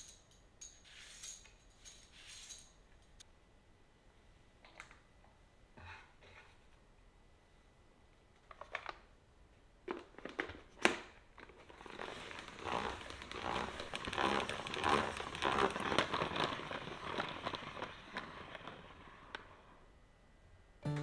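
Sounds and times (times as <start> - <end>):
salad spinner whirring: 11.8 - 19.6.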